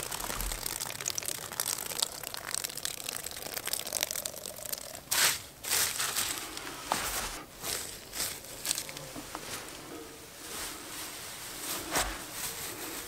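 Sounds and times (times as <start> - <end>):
water pouring onto ashes: 0.0 - 9.0.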